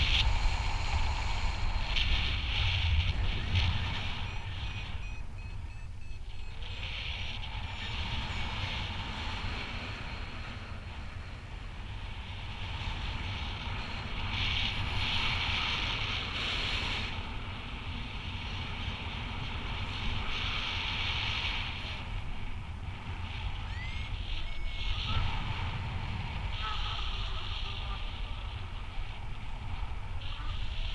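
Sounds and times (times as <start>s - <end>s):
wind rushing over microphone: 0.0s - 30.9s
electronic beeps: 3.2s - 9.0s.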